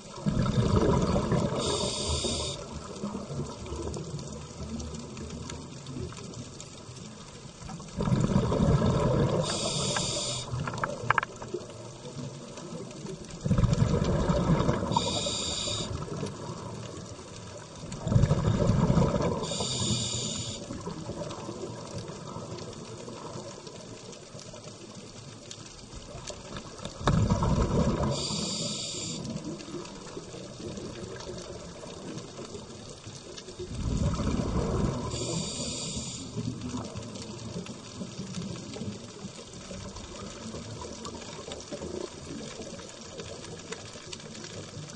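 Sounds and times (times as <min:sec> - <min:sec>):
faint underwater hiss: 0:00.0 - 0:44.9
rush of breathing bubbles: 0:00.2 - 0:02.8, 0:07.9 - 0:11.1, 0:13.4 - 0:16.2, 0:18.0 - 0:21.0, 0:27.0 - 0:29.6, 0:33.7 - 0:36.9
regulator high hiss: 0:01.5 - 0:02.7, 0:09.4 - 0:10.6, 0:14.9 - 0:16.0, 0:19.4 - 0:20.7, 0:28.1 - 0:29.3, 0:35.1 - 0:36.5.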